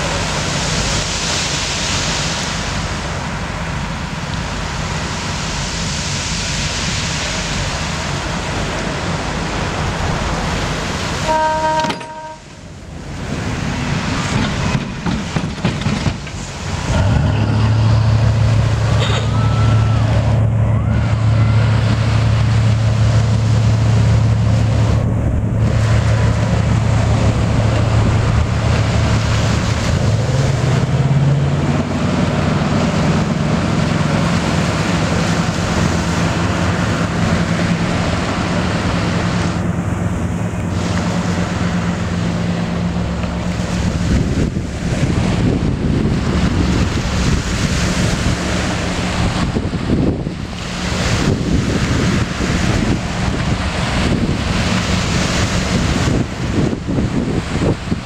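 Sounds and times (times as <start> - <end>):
boat diesel engines droning: 0.0 - 58.0
surf: 0.0 - 58.0
wind buffeting microphone: 12.7 - 58.0.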